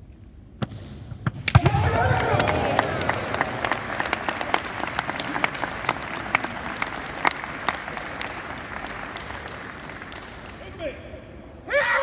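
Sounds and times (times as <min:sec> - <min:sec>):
spectators applauding: 0:01.8 - 0:11.0.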